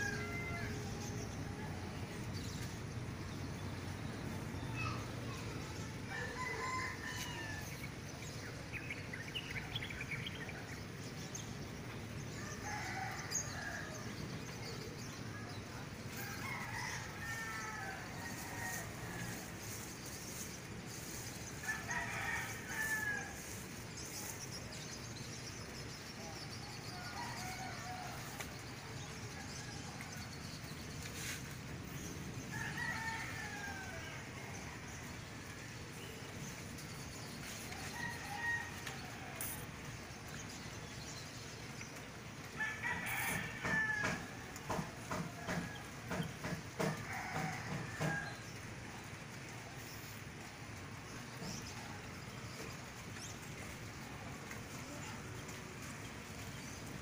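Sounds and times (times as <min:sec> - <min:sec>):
roosters crowing: 0:00.0 - 0:02.5, 0:06.1 - 0:08.0, 0:12.3 - 0:14.3, 0:15.0 - 0:24.5, 0:26.8 - 0:35.7, 0:37.1 - 0:40.0, 0:42.4 - 0:49.2.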